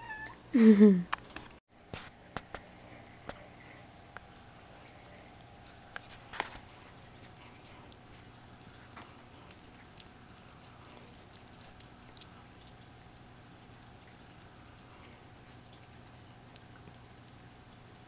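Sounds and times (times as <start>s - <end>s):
cat meowing: 0.0s - 0.4s
steady low hum: 0.4s - 18.0s.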